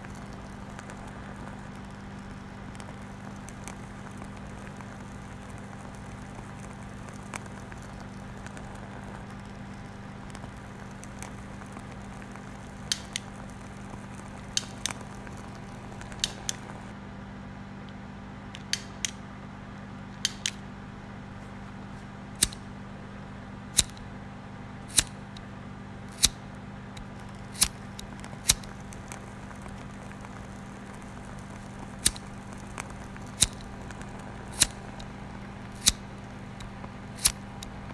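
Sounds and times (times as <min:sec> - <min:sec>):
sharp clicks: 0:00.0 - 0:16.9, 0:20.2 - 0:20.6, 0:22.4 - 0:22.7, 0:23.8 - 0:24.0, 0:24.9 - 0:25.5, 0:26.1 - 0:37.9
steady low hum: 0:00.0 - 0:37.9.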